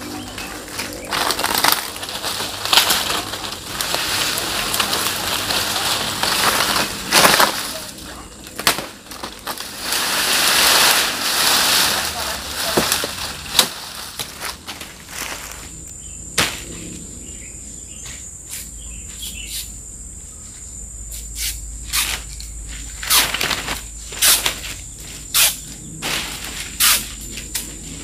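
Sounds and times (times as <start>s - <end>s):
high insect drone: 0.0s - 28.0s
palm frond stalk cracking: 0.1s - 15.7s, 22.0s - 24.8s.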